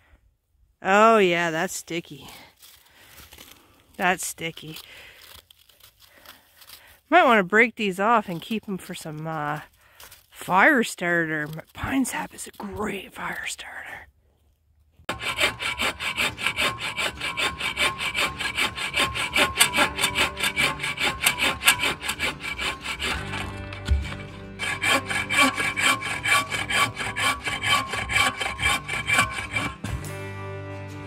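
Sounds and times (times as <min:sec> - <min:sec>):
bow saw cutting wood: 0:15.1 - 0:30.1.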